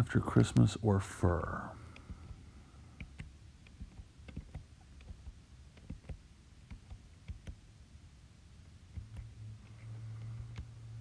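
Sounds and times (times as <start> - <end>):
low steady hum: 0.0 - 11.0
fingertips tapping touchscreen: 0.2 - 0.7, 1.9 - 7.7, 8.9 - 11.0.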